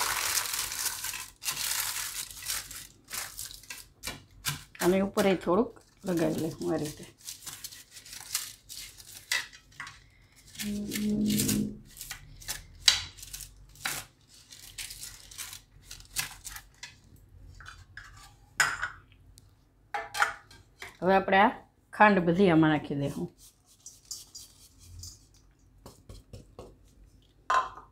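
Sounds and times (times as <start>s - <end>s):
brush crinkling baking paper: 0.0s - 17.1s, 22.9s - 27.3s.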